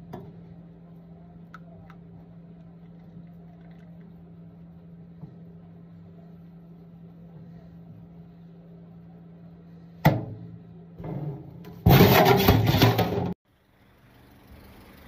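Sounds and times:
low steady hum: 0.0 - 15.0
sharp clatter: 11.0 - 13.4.

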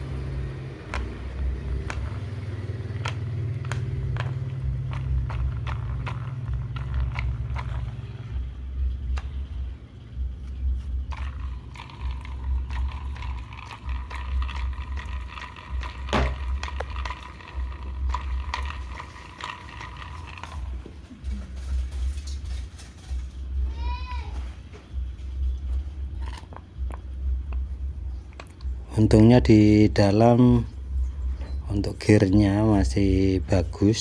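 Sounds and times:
steady high whine: 0.0 - 23.8
plastic gears clicking and knocking: 11.1 - 20.7.

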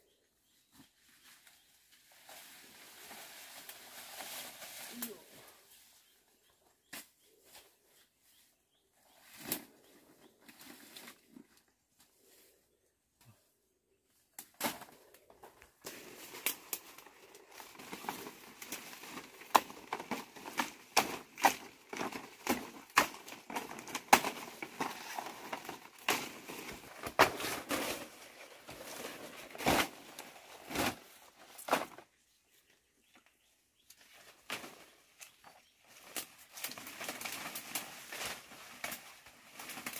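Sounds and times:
leaves rustling and crackling: 0.9 - 6.1, 14.4 - 32.2, 33.9 - 39.9
stems snapping: 15.8 - 27.2, 36.0 - 39.9.

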